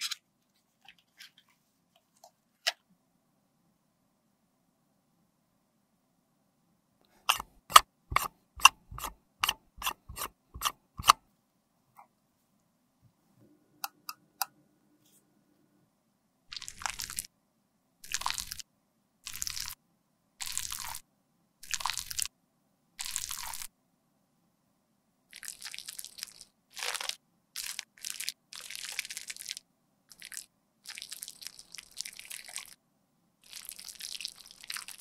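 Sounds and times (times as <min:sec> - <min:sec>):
spatula scraping metal pan: 0:07.3 - 0:11.2.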